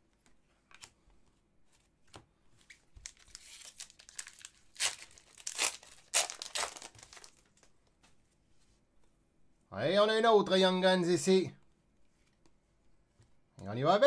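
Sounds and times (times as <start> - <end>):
wrapper ripping and crinkling: 3.0 - 7.7.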